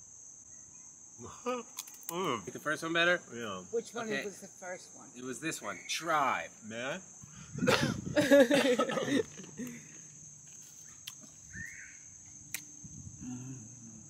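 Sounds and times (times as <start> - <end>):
crickets droning: 0.0 - 14.0
person's wordless vocal burst: 1.2 - 2.4, 13.2 - 14.0.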